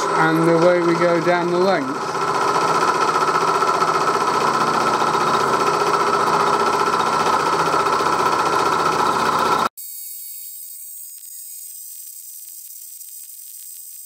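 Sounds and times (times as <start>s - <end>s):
milling machine cutting metal: 0.0s - 9.7s.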